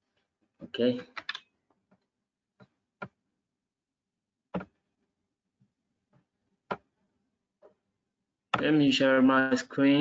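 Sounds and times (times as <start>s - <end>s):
computer mouse clicks: 1.1s - 1.5s.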